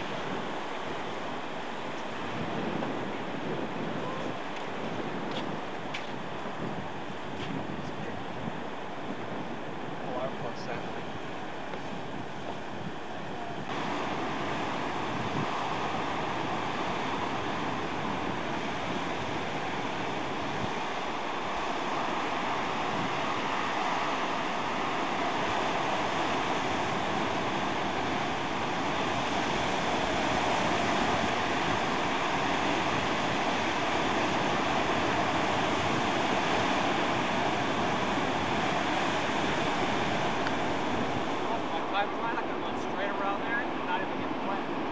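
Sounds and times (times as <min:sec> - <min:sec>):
surf breaking on rocky shore: 0:00.0 - 0:44.9.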